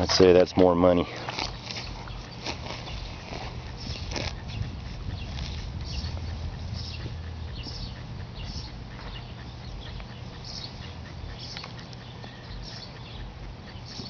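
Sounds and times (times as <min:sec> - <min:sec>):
rustling of soil and grass: 0:00.0 - 0:06.4
low rumble: 0:03.4 - 0:10.4.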